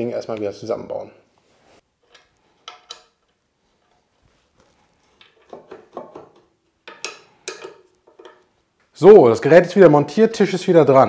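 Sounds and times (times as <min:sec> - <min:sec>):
light metallic clicks and knocks: 0:05.2 - 0:08.5.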